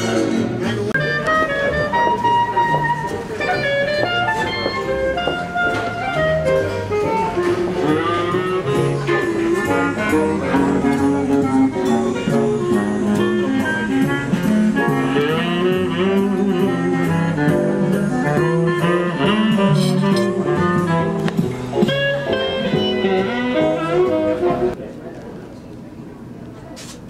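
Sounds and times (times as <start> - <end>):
instrumental jazz music: 0.0 - 24.8.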